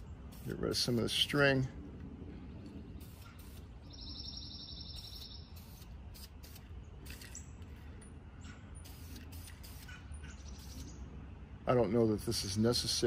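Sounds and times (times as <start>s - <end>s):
spray paint hissing: 0.0s - 1.3s, 2.9s - 7.4s, 8.8s - 10.9s
bird trilling: 3.0s - 5.8s, 9.6s - 11.0s.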